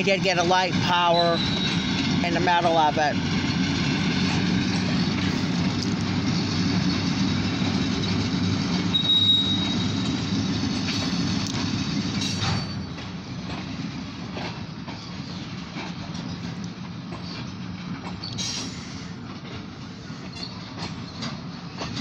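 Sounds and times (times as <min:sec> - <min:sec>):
freight train rumbling: 0:00.0 - 0:22.0
train cars knocking: 0:00.1 - 0:22.0
train wheel squeal: 0:01.0 - 0:02.2, 0:06.2 - 0:13.1, 0:14.5 - 0:16.6, 0:17.2 - 0:22.0.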